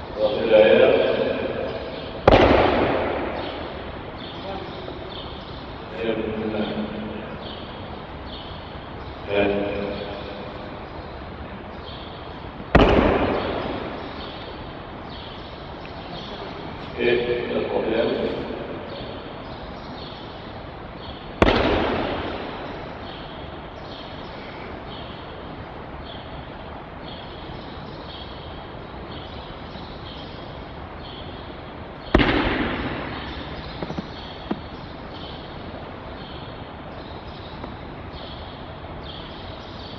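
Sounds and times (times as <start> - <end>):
steady hiss: 0.0 - 39.9
light knocks: 33.7 - 34.8.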